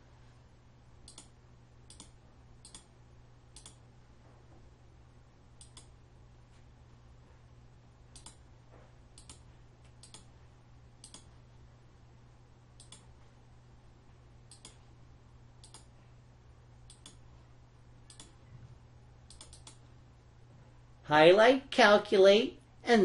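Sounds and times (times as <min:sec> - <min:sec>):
low steady hum: 0:00.0 - 0:23.0
computer mouse clicks: 0:01.0 - 0:02.9, 0:03.5 - 0:03.8, 0:05.6 - 0:06.0, 0:08.1 - 0:08.4, 0:09.2 - 0:10.3, 0:11.0 - 0:11.3, 0:12.8 - 0:13.2, 0:14.5 - 0:14.9, 0:15.6 - 0:15.9, 0:16.9 - 0:17.2, 0:18.1 - 0:18.4, 0:19.2 - 0:19.8.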